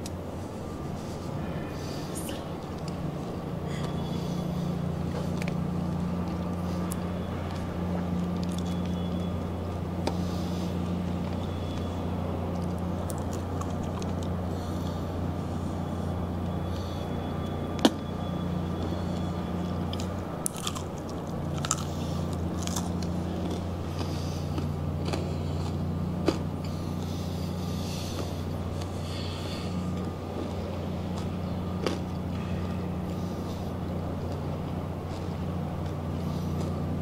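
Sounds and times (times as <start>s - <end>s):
low hum: 0.0s - 37.0s
person chewing crispy food: 2.6s - 9.3s, 10.0s - 14.5s, 18.7s - 37.0s.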